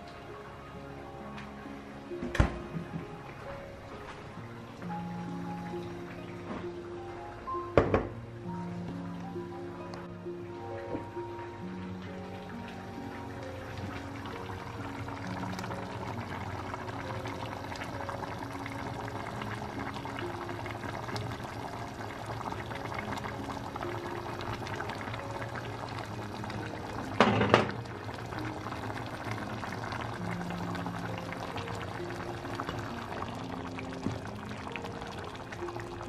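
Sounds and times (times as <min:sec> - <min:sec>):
background music: 0:00.0 - 0:36.0
stew bubbling in saucepan: 0:07.7 - 0:36.0.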